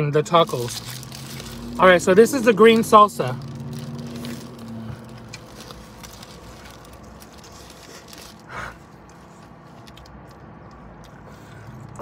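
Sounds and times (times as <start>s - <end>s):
person chewing food: 3.6s - 12.0s.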